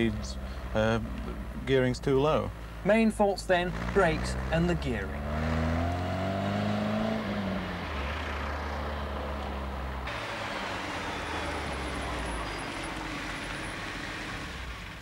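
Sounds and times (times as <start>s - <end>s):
car engine accelerating: 3.4s - 15.0s.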